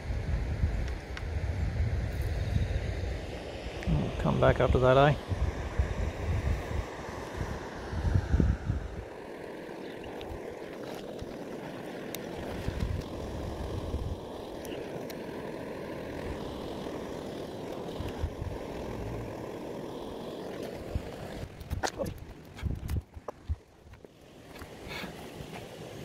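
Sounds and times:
wind on microphone: 0.0 - 11.5, 12.3 - 14.8, 17.8 - 19.4, 20.8 - 24.0.

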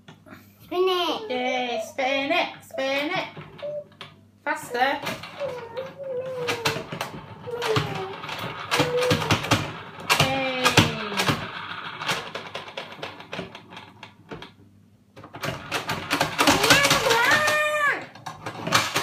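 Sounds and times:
plastic clicking and clattering: 5.0 - 14.6, 15.2 - 19.0.

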